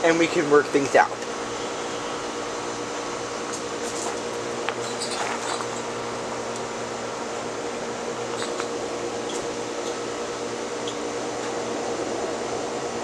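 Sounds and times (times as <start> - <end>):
air rushing from fan blades: 0.0 - 13.0
ceiling fan motor hum: 0.0 - 13.0.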